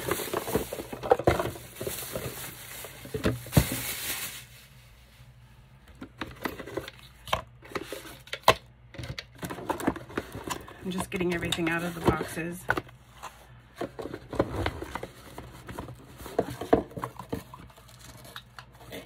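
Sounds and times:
plastic bag rustling: 0.0s - 5.3s.

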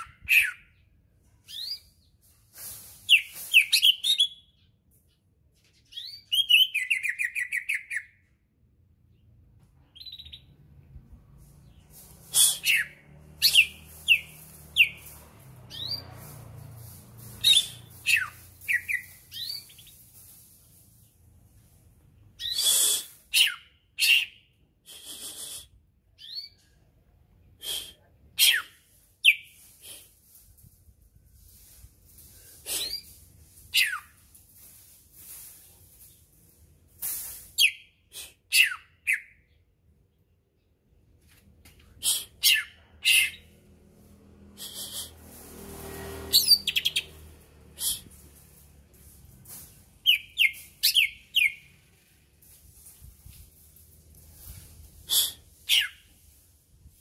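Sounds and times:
bird chirping: 9.1s - 10.7s, 17.4s - 20.1s, 50.0s - 51.8s.

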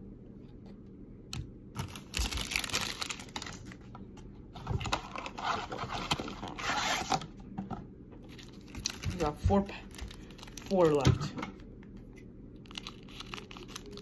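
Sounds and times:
cards and foil wrapper rustling: 1.8s - 3.9s, 8.3s - 11.0s, 12.6s - 14.0s.

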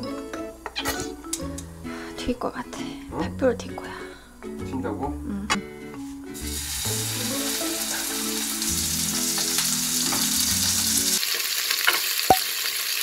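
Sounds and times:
steak sizzling in a frying pan: 6.4s - 13.0s.

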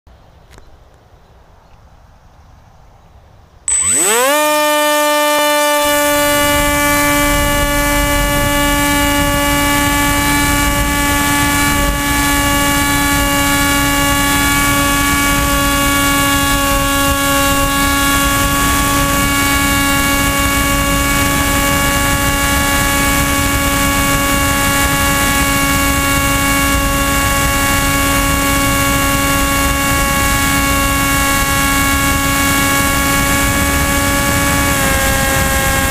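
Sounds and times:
electric motor propeller whine: 3.7s - 35.9s
wind rush: 5.2s - 35.9s.

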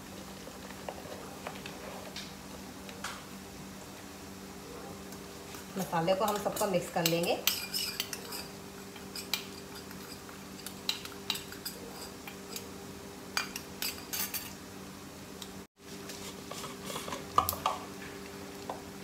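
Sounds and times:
spoon clinking against bowl: 6.3s - 12.6s.

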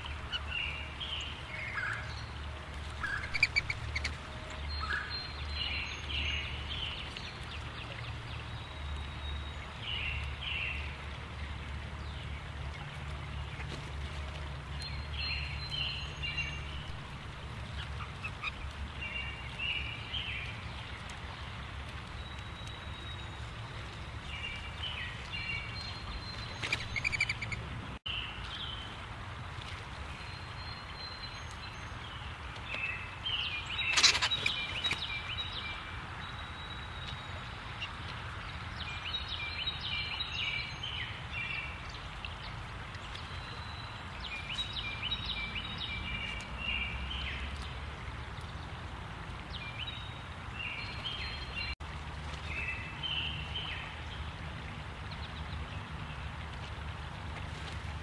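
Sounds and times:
low outdoor rumble: 0.0s - 40.2s.

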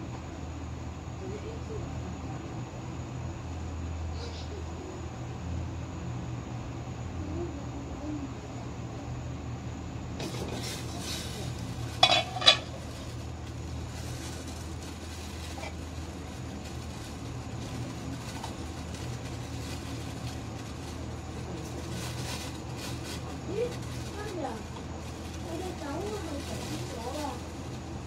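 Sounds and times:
water hissing in pot: 10.2s - 17.9s.

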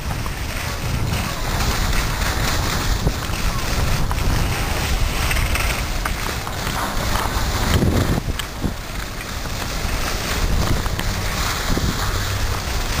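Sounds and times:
skis scraping over snow: 0.0s - 13.0s
wind buffeting microphone: 0.0s - 13.0s.

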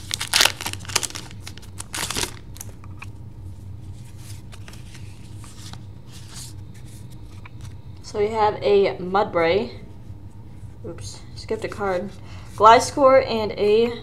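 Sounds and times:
foil wrapper crinkling and tearing: 0.0s - 3.0s
cards being handled: 0.0s - 3.2s, 3.9s - 7.8s.

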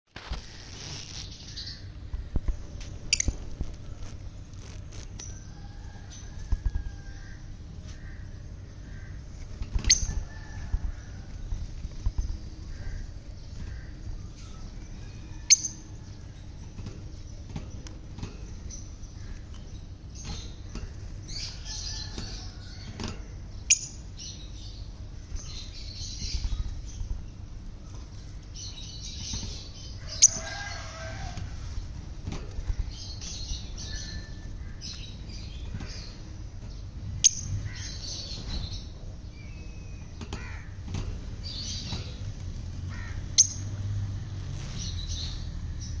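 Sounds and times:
steady low rumble: 0.3s - 46.0s.

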